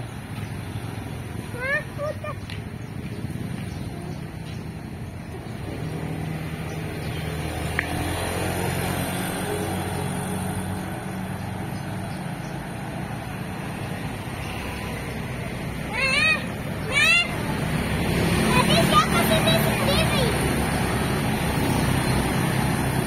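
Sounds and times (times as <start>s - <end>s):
car passing by: 5.6s - 16.4s, 17.2s - 23.0s.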